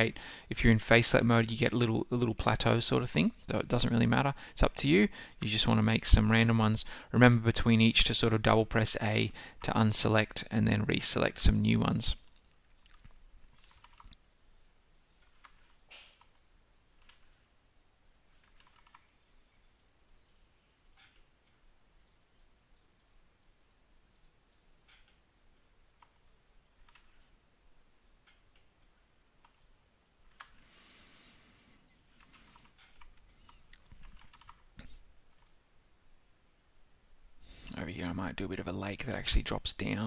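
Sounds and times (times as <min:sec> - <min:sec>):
mouse and keyboard clicks: 0:12.7 - 0:17.5, 0:18.3 - 0:21.3, 0:26.0 - 0:27.4.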